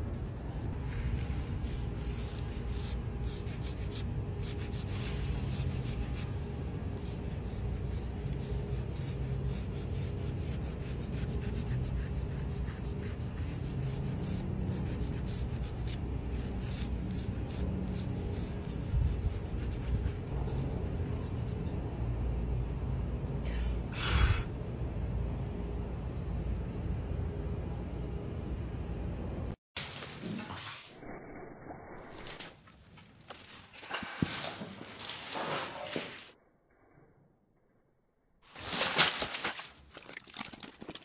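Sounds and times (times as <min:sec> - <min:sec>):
chalk scraping on concrete: 0:00.1 - 0:06.3, 0:07.0 - 0:21.6.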